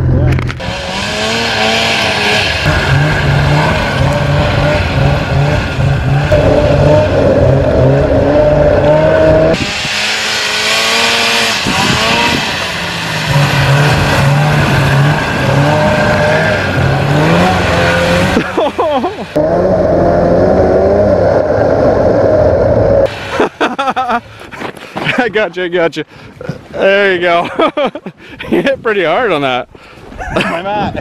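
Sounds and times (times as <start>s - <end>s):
snowmobile engine revving: 0.0s - 24.2s.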